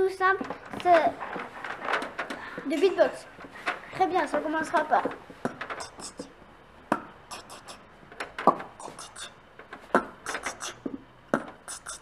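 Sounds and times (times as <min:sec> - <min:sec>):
child beatboxing: 0:03.9 - 0:12.0.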